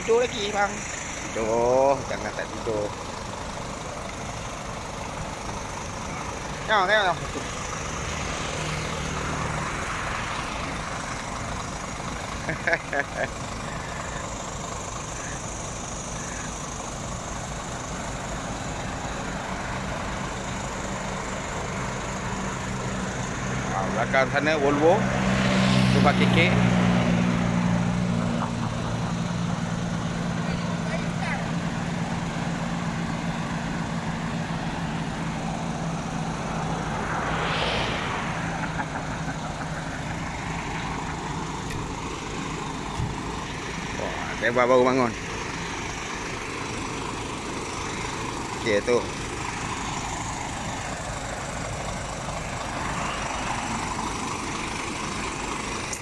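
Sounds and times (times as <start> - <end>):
truck diesel engine idling: 0.0 - 25.3, 27.2 - 37.4, 38.0 - 56.0
broad whooshing hiss: 35.7 - 41.3.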